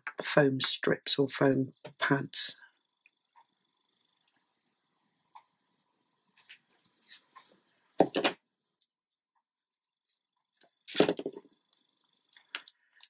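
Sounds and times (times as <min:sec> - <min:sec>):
card and foam rustling: 0:10.7 - 0:11.5.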